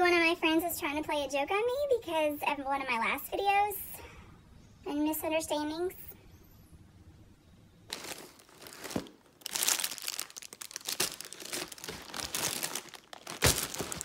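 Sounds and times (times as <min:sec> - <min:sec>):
packaging crinkling and tearing: 0:07.9 - 0:14.0.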